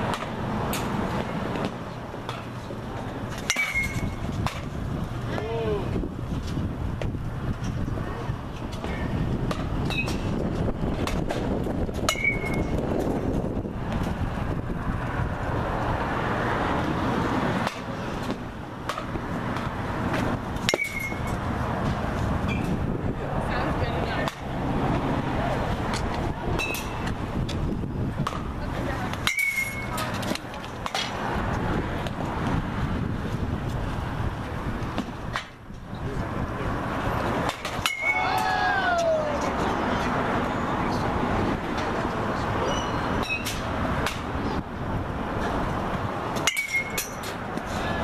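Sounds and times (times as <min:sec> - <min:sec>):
steady outdoor noise: 0:00.0 - 0:48.0
traffic noise: 0:00.0 - 0:48.0
wind: 0:00.0 - 0:48.0
bat hitting ball: 0:03.4 - 0:04.7, 0:11.0 - 0:12.8, 0:17.6 - 0:21.4, 0:28.2 - 0:28.5, 0:29.1 - 0:31.2, 0:37.4 - 0:39.0, 0:46.4 - 0:47.7
bat hitting ball metallic ping: 0:03.4 - 0:04.7, 0:12.1 - 0:12.7, 0:20.6 - 0:21.4, 0:29.2 - 0:30.0, 0:37.5 - 0:38.3, 0:46.4 - 0:47.2.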